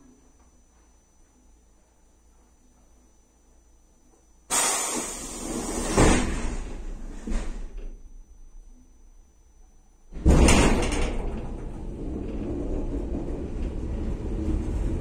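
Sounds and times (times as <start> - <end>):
compressed air hissing: 4.5 - 6.1
heavy door thuds: 10.2 - 14.5.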